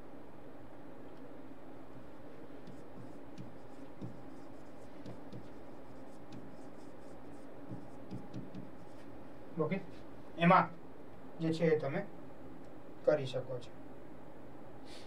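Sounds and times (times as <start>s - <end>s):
low room hum: 0.0s - 15.0s
pen scratching on board: 2.6s - 9.0s.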